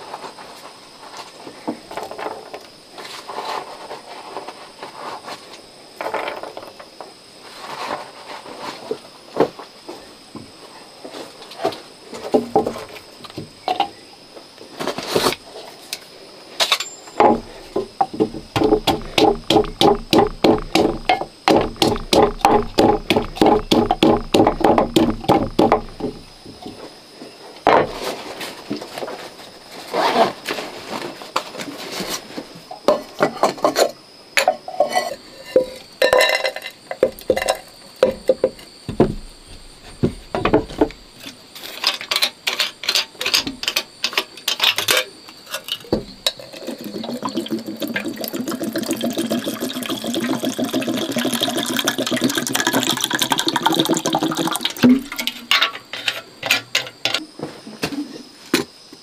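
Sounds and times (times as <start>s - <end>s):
knife handle pounding in wooden cup: 18.2s - 26.2s
dry pieces clinking into metal kettle: 36.0s - 37.7s
water pouring into kettle: 46.4s - 54.8s.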